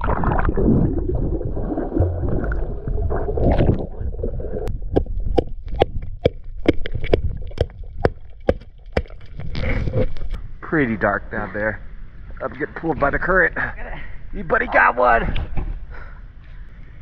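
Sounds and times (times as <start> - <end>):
muffled underwater water rushing: 0.0 - 10.6.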